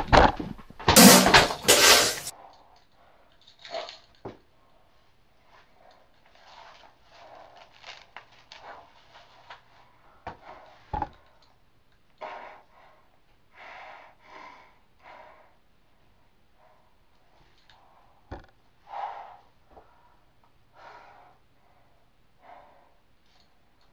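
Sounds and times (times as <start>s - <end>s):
person breathing hard: 12.2s - 15.8s, 16.5s - 23.2s.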